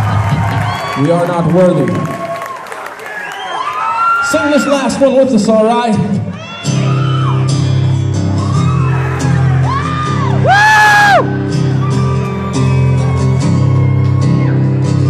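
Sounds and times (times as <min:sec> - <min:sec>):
audience whooping and shouting: 0:00.0 - 0:05.2, 0:06.2 - 0:15.0
acoustic guitars playing slow song: 0:06.6 - 0:10.5, 0:11.2 - 0:15.0.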